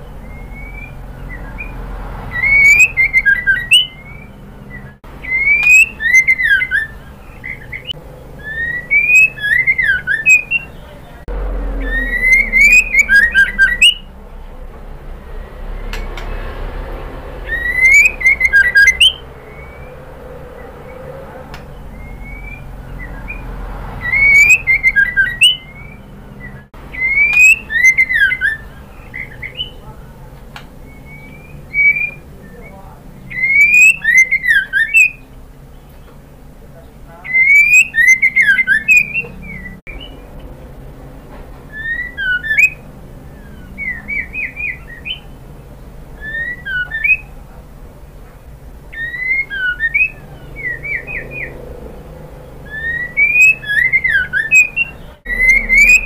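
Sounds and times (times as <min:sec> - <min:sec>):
bird whistling short phrases: 0:02.3 - 0:10.8, 0:11.8 - 0:14.1, 0:17.5 - 0:19.8, 0:24.0 - 0:29.8, 0:33.3 - 0:35.2, 0:37.3 - 0:40.1, 0:41.7 - 0:42.8, 0:48.9 - 0:51.6, 0:52.7 - 0:56.0
steady low hum: 0:03.9 - 0:24.0.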